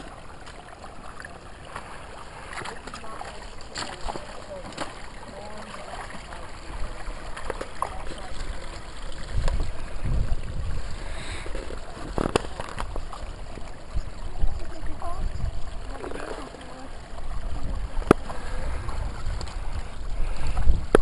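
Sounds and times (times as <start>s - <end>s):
low microphone rumbles: 6.6s - 16.4s, 17.0s - 21.0s.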